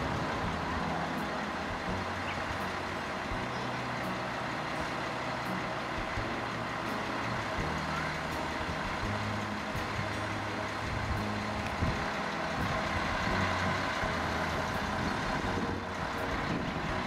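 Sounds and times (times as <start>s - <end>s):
low engine hum: 0.0s - 17.0s.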